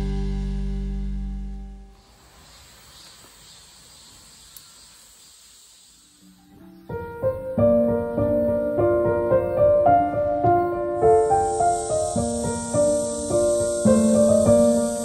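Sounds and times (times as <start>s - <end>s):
crickets chirring: 2.0s - 15.0s
gentle piano music: 6.4s - 15.0s.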